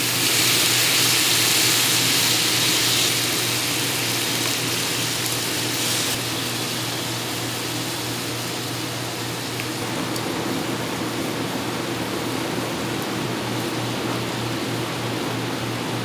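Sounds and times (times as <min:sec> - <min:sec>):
meat sizzling in a frying pan: 0:00.0 - 0:09.8.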